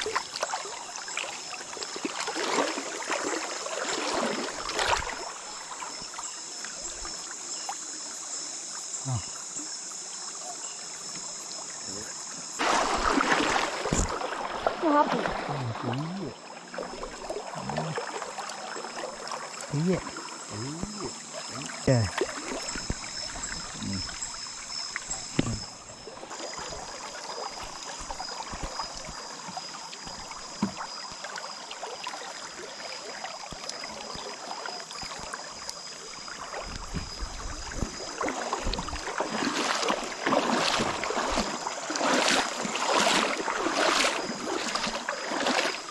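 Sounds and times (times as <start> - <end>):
water splashing and dripping: 0.0 - 8.0, 12.6 - 45.9.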